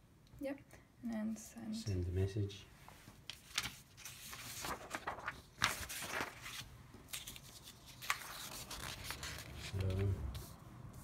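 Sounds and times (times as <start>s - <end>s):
paper rustling: 3.0s - 10.6s.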